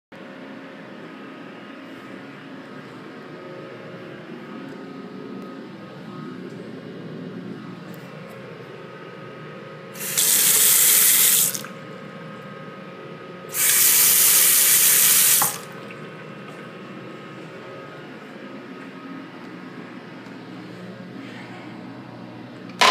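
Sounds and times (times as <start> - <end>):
faucet water running into basin: 10.0 - 11.7, 13.6 - 16.0.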